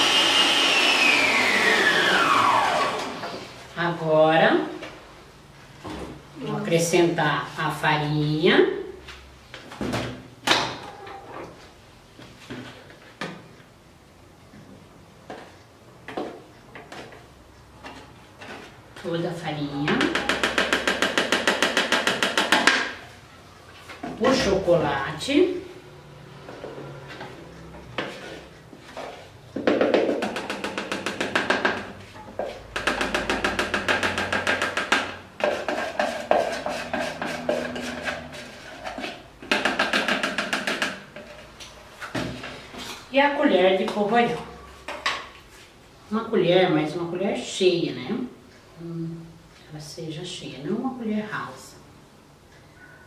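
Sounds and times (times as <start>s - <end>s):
rapid tapping on plastic cup: 19.9s - 22.9s, 29.6s - 31.9s, 32.7s - 37.8s, 39.4s - 41.0s.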